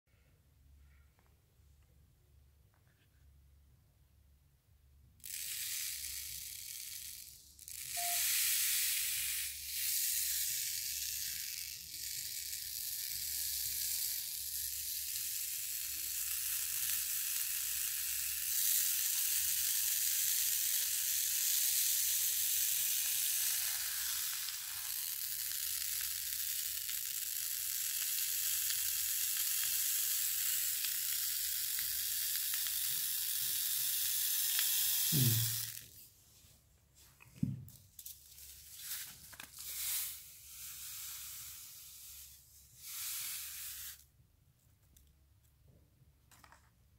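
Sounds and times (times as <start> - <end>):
granules pouring onto paper: 5.2 - 36.0, 38.0 - 44.0.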